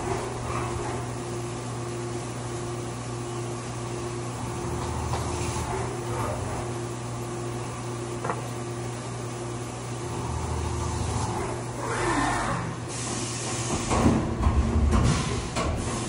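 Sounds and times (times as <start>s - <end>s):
milling machine hum: 0.0s - 16.0s.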